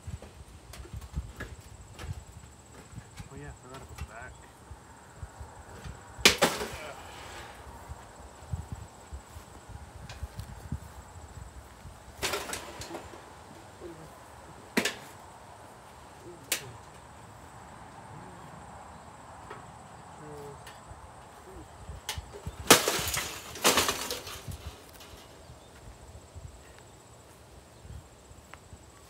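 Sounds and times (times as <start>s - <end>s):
toaster oven being smashed: 6.2s - 7.0s, 12.2s - 13.2s, 22.6s - 25.2s
clattering crashes: 6.3s - 7.0s, 12.2s - 13.2s, 22.6s - 25.3s.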